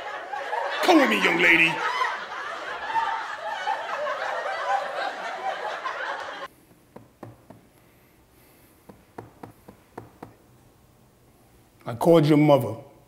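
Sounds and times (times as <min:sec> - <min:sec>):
teenagers laughing and chattering: 0:00.0 - 0:06.5.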